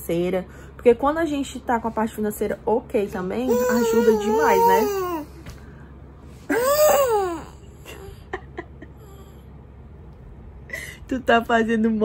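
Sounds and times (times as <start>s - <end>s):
baby squealing: 3.5s - 5.3s, 6.5s - 7.6s.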